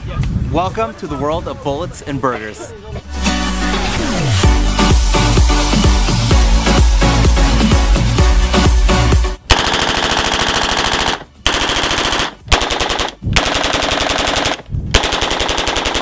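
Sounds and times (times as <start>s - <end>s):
electronic dance music: 3.0s - 9.4s
submachine gun bursts: 9.5s - 16.0s.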